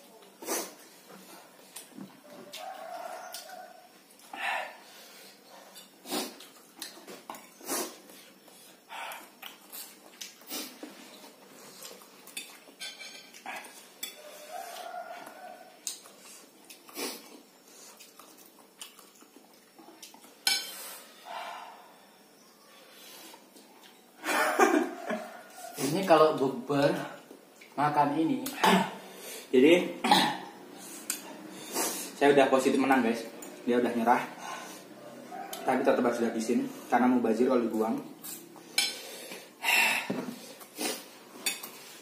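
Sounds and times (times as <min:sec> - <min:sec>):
forks clinking and scraping on plates: 0:12.2 - 0:14.8, 0:20.4 - 0:20.8, 0:41.4 - 0:41.9.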